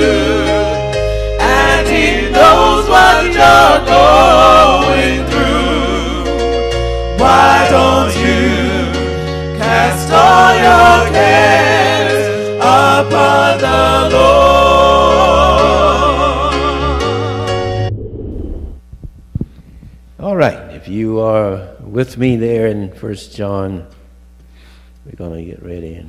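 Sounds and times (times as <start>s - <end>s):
gospel singing: 0.0s - 17.8s
sustained bass notes: 15.9s - 20.6s.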